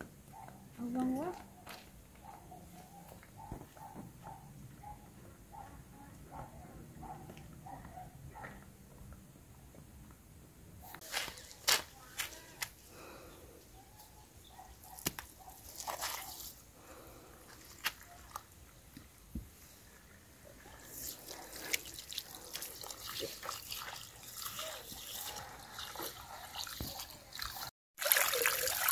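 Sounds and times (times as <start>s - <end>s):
water splashing in a pot: 20.8s - 28.9s.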